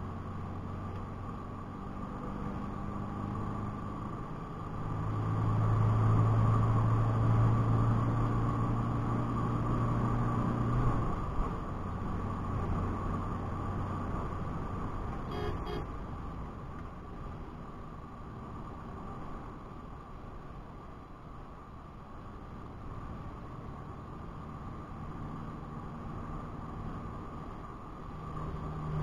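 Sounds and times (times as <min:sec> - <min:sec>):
road and wind noise: 0:00.0 - 0:29.0
short double beep: 0:15.3 - 0:15.8.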